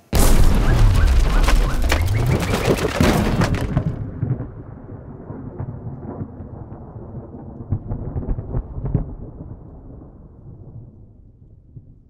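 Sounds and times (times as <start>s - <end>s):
sharp crackles: 0.0s - 4.0s
thunder rumbling: 0.0s - 11.9s.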